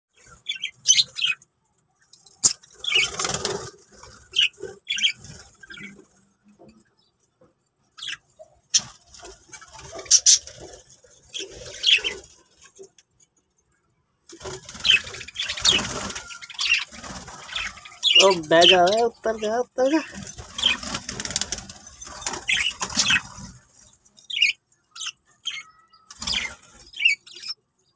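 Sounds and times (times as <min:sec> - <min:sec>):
budgerigars chirping: 0:04.2 - 0:06.0, 0:08.0 - 0:08.9, 0:09.9 - 0:10.6, 0:11.3 - 0:12.3, 0:14.8 - 0:21.0, 0:22.0 - 0:23.5, 0:24.3 - 0:27.6.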